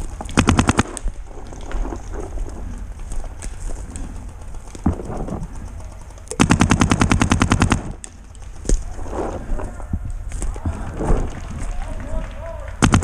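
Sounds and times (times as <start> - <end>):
paintball marker firing: 3.2 - 9.4, 12.8 - 13.0.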